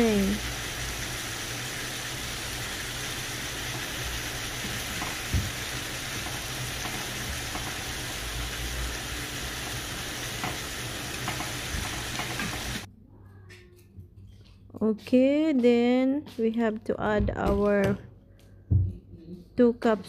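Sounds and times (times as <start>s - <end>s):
chicken sizzling in oil: 0.0s - 12.9s.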